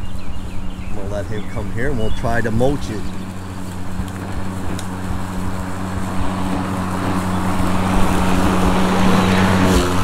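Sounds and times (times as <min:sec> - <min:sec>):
lawn mower cutting grass: 0:00.0 - 0:10.0.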